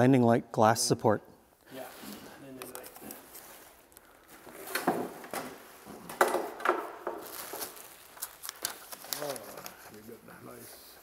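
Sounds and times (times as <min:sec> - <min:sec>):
packaging rustling: 0:02.0 - 0:10.6.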